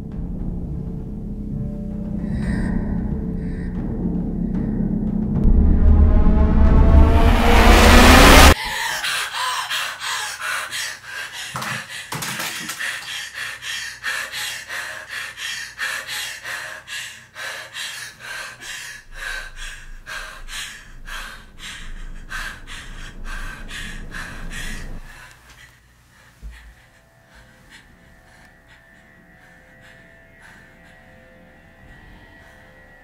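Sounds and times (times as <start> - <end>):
faint low hum: 18.6 - 33.0.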